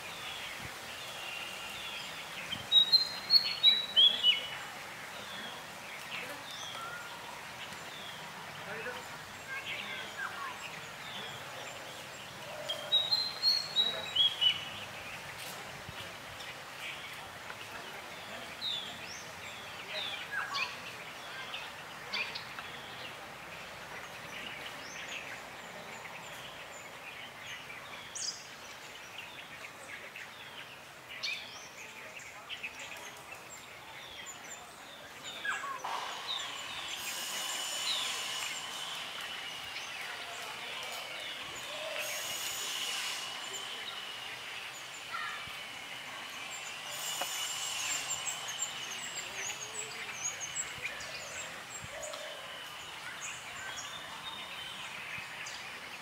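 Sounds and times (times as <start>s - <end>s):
birds chirping: 0.0s - 56.0s
steady high buzz and hiss: 33.2s - 56.0s.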